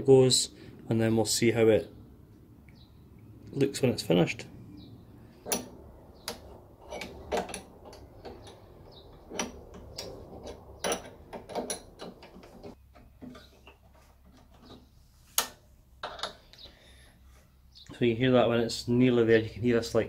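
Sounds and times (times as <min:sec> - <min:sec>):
spanner clicking and knocking on metal: 0:05.4 - 0:14.8.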